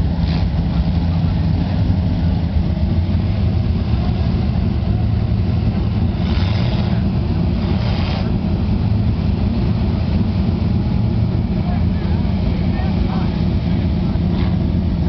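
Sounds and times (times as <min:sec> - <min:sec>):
truck engine running deep: 0:00.0 - 0:15.0.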